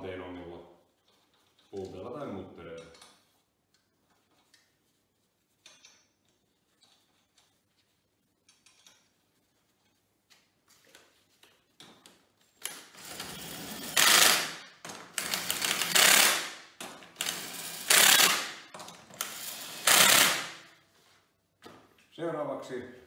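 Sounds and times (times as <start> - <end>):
impact wrench bursts: 12.8 - 20.6.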